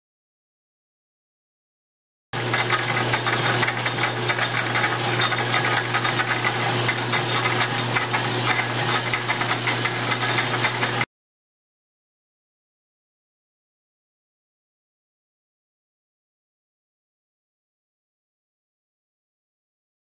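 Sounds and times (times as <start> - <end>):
lathe motor hum: 2.4 - 11.1.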